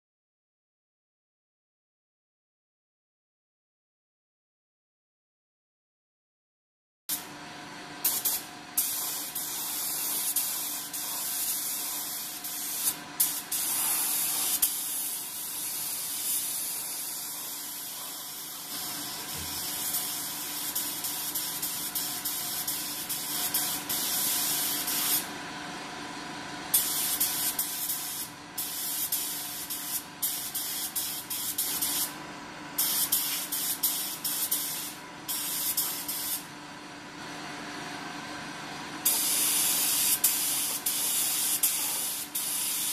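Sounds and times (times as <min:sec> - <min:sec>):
spray gun hissing: 0:08.0 - 0:25.2, 0:26.7 - 0:32.1, 0:32.8 - 0:36.4, 0:39.0 - 0:42.9.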